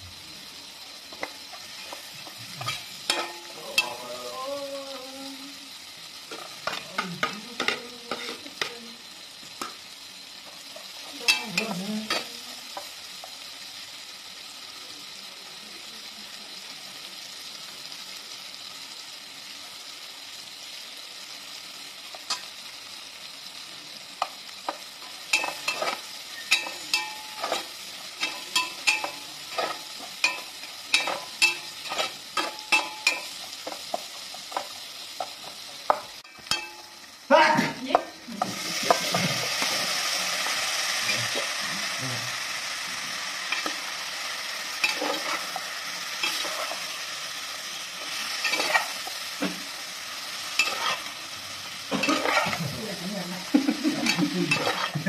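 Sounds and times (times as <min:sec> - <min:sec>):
food sizzling in pot: 0:00.0 - 0:55.0
metal ladle scraping pot: 0:54.1 - 0:55.0.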